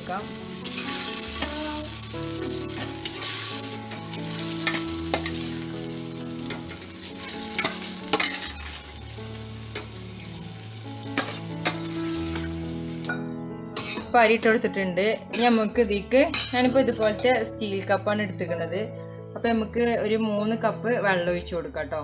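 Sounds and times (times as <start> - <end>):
paste sizzling in a pot: 0.0 - 13.2, 13.8 - 14.1.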